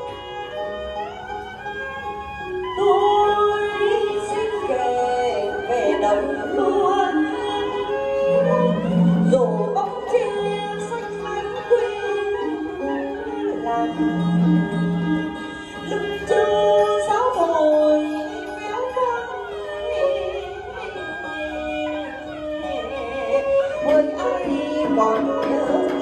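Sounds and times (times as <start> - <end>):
traditional ensemble music: 0.0 - 26.0.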